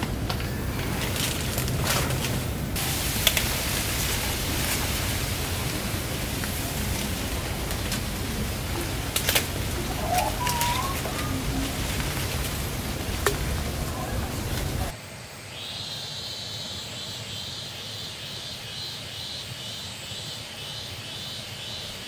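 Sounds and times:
branches cracking: 0.0s - 14.9s
leaves and branches rustling: 0.0s - 15.8s
steady outdoor hiss: 0.0s - 22.0s
wavering bird call: 8.5s - 14.9s.

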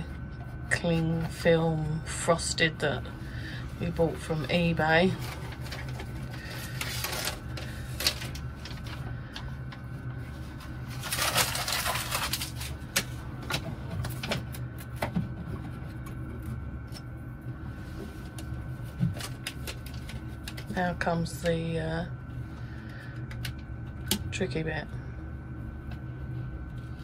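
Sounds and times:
steady low hum: 0.0s - 27.0s
film crinkling rustle: 5.0s - 9.4s, 10.2s - 13.2s.

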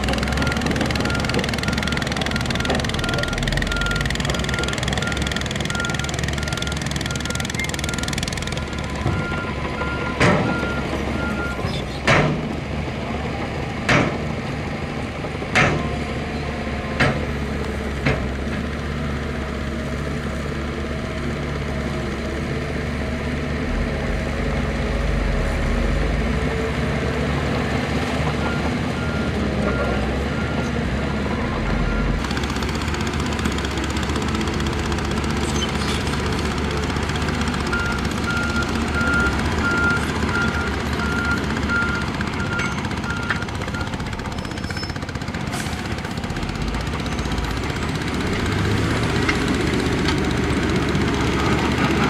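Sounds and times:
diesel construction machinery running: 0.0s - 52.0s
reversing alarm beeping: 0.3s - 11.6s, 37.7s - 44.1s.

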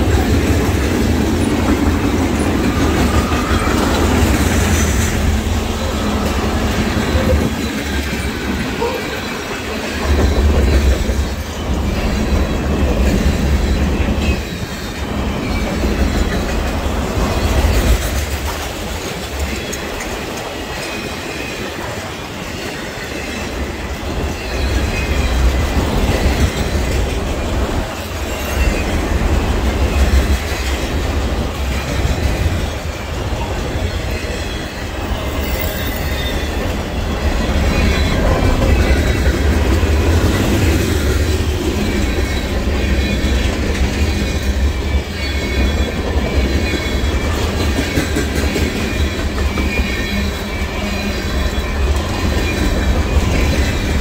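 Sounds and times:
freight train wheels rumbling: 0.0s - 54.0s
faint high wheel squeal: 28.0s - 30.4s, 32.6s - 54.0s.

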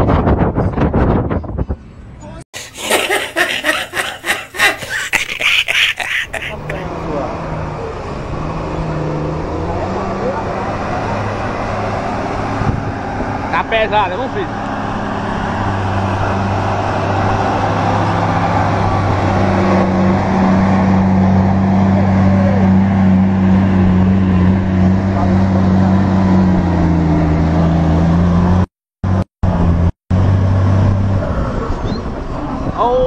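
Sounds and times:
truck diesel engine pulling uphill: 6.6s - 32.4s.

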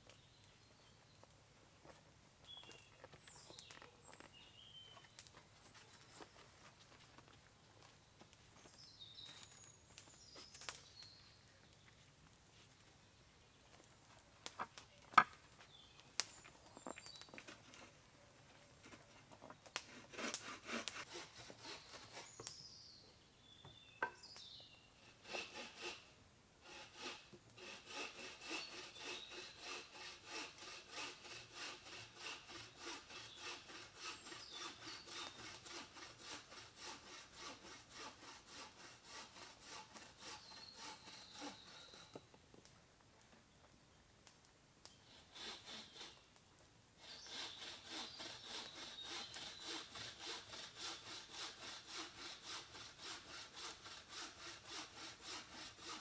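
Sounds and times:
hand saw cutting wood: 17.0s - 18.0s, 18.8s - 22.6s, 24.0s - 42.2s, 45.0s - 46.3s, 47.0s - 56.0s.

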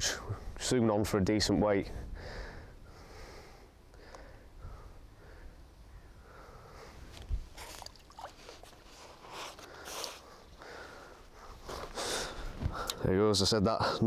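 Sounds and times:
faint rustling and handling: 6.9s - 12.9s.

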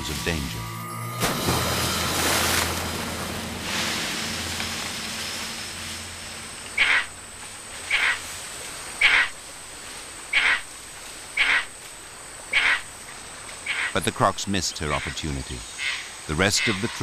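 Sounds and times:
water splashing and churning: 1.2s - 7.3s.

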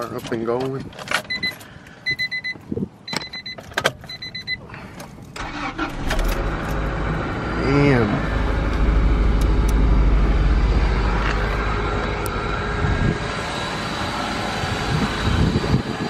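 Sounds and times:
car engine idling: 5.4s - 15.4s.

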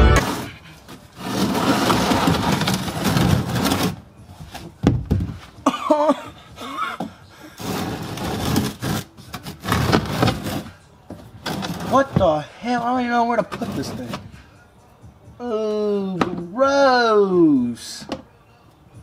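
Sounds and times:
pan scraping on concrete: 0.0s - 4.0s, 7.5s - 10.8s, 11.4s - 14.3s.

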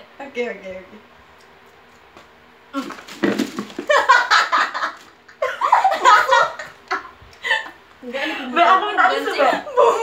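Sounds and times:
laughter: 3.8s - 7.8s.

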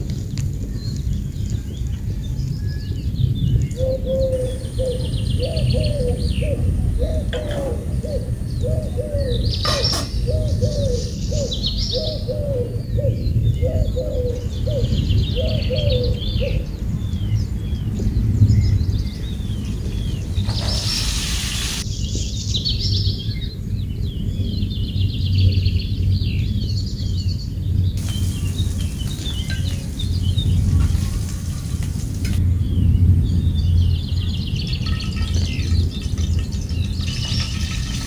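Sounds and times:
steady low rumble: 0.0s - 12.2s, 21.7s - 38.0s
birds chirping: 0.0s - 38.0s
low repeated bird calls: 0.0s - 38.0s
brief loud hiss: 20.4s - 21.8s.

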